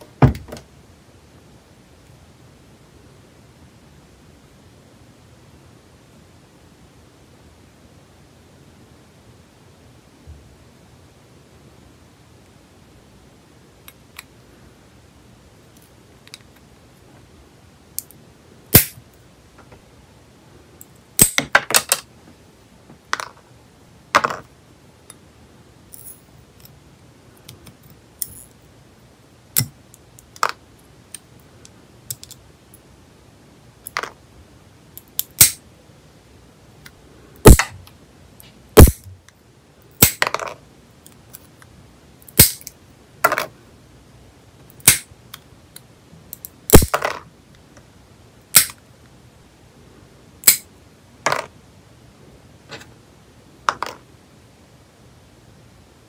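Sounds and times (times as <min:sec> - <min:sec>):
nail clippers cracking nails: 0:35.2 - 0:35.6, 0:38.8 - 0:39.1, 0:42.4 - 0:42.7, 0:44.8 - 0:45.1, 0:48.5 - 0:48.8.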